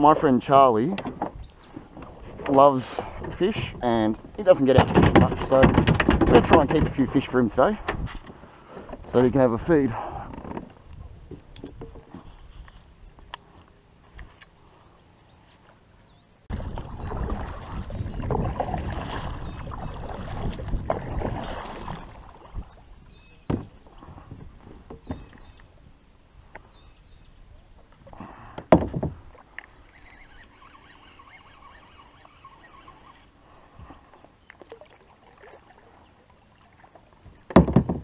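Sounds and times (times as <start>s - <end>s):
paddle splashing in water: 16.5s - 25.6s, 33.7s - 38.0s.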